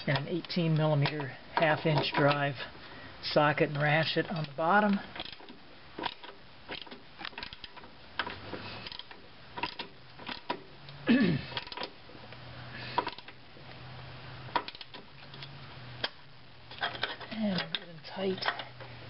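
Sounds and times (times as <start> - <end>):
socket ratchet clicking: 5.1 - 10.6, 14.5 - 16.2.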